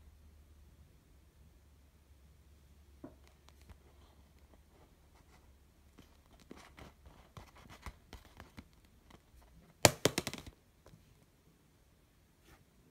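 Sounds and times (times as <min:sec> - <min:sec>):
plastic balloon crinkling: 0:05.9 - 0:10.6.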